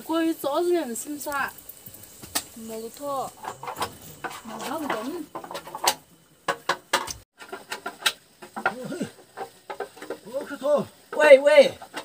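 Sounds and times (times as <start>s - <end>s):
sharp clicks and knocks: 3.3s - 10.2s.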